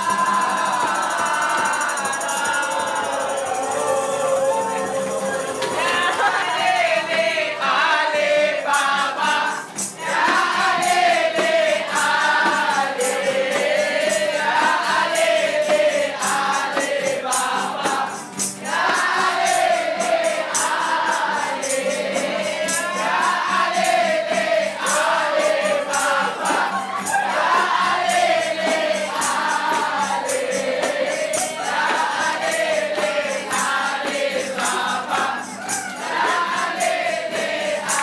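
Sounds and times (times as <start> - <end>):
chorus singing: 0.0 - 38.0
rhythmic beat of sharp strokes: 0.0 - 38.0.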